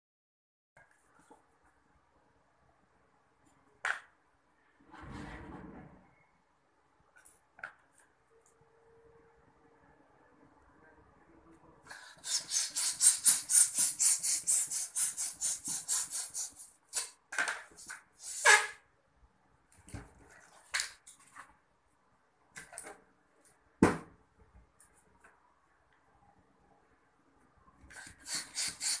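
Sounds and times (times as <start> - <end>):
balloon being rubbed: 11.9 - 17.2, 17.8 - 18.8, 27.9 - 29.0
balloon pump hissing strokes: 11.9 - 17.2, 17.8 - 18.8, 27.9 - 29.0.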